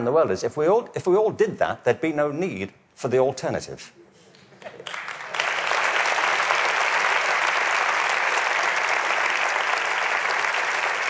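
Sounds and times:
large audience applauding: 4.8 - 11.0.

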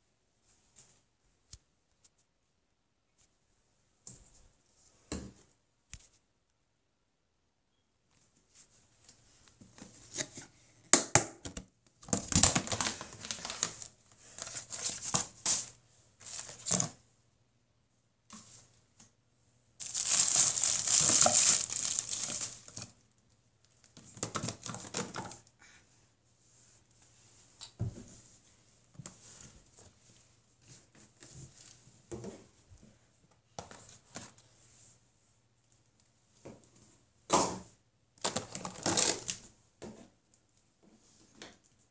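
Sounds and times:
crinkling and rustling: 11.6 - 17.0, 19.8 - 25.5, 38.2 - 41.9.

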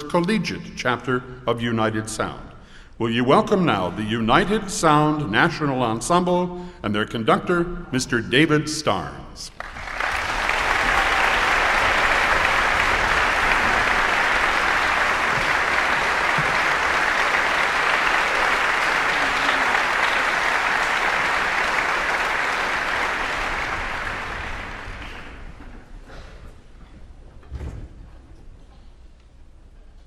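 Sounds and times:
audience applauding: 9.5 - 25.9.

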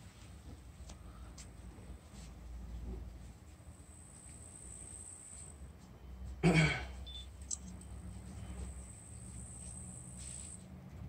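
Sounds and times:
person coughing: 6.4 - 7.0.

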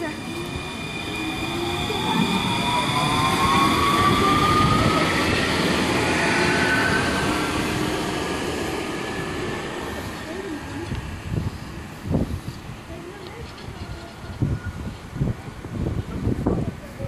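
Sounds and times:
tram traction drive whining: 0.0 - 12.4
tram rolling noise: 0.0 - 17.0.

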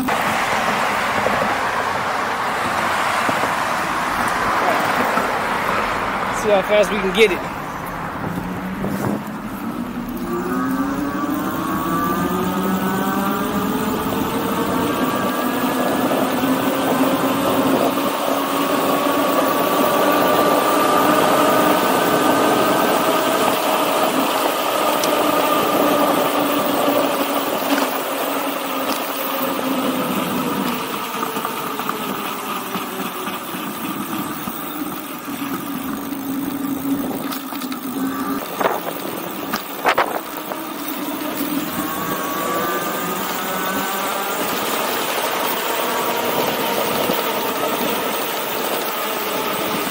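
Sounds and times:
wind and road noise: 0.0 - 49.9
electric motor whining: 7.1 - 49.9.

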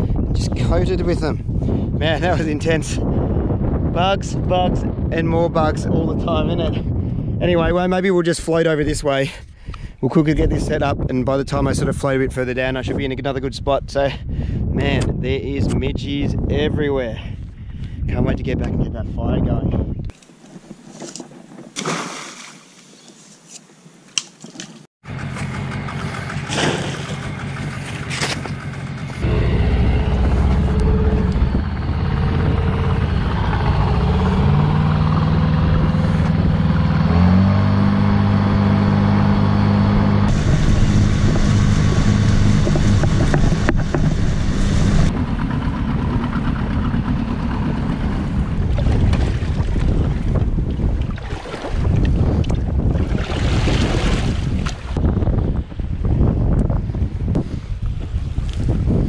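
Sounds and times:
wind: 0.0 - 59.0
water noise: 20.1 - 22.9, 26.2 - 56.1
outboard motor running: 25.0 - 55.7.

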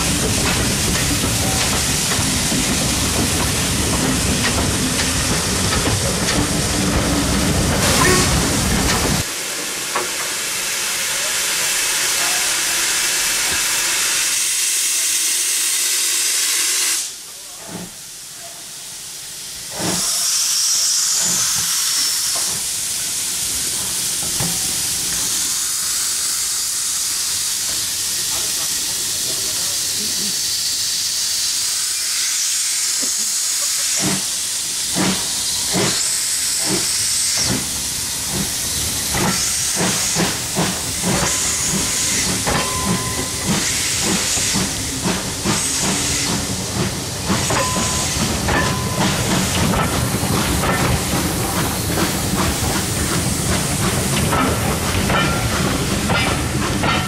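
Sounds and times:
train wheels clicking over rail joints: 0.0 - 10.4, 21.0 - 25.6, 26.8 - 30.2, 33.0 - 57.0
steam hissing: 0.0 - 57.0.

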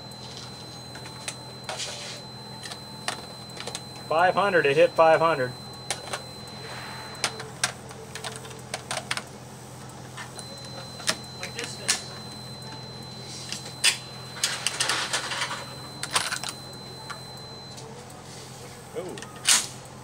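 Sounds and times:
faint high whine: 0.0 - 7.8, 10.4 - 17.8.

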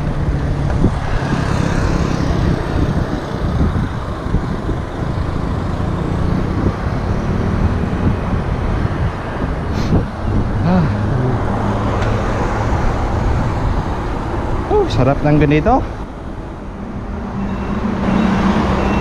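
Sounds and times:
wind buffeting microphone: 0.0 - 15.0
road traffic passing: 0.0 - 19.0.

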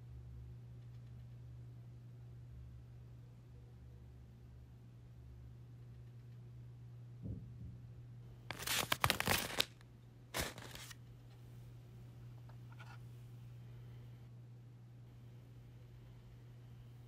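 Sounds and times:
steady low hum: 0.0 - 17.0
paper rustling: 8.5 - 11.0.

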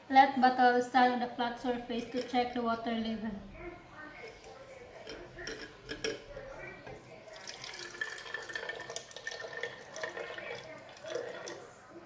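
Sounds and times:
water pouring into plastic bottle: 7.3 - 11.7.

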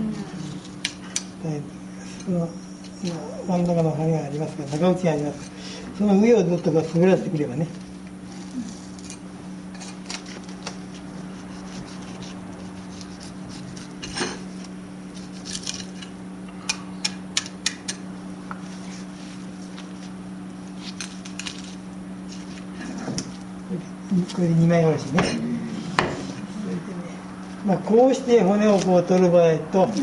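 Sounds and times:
knife scraping fish bones: 8.8 - 18.0.

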